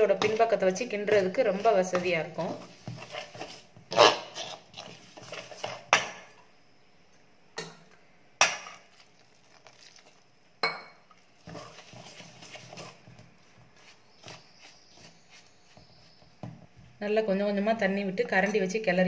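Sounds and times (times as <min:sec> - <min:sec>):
ladle scraping in steel bowl: 0:01.1 - 0:05.9.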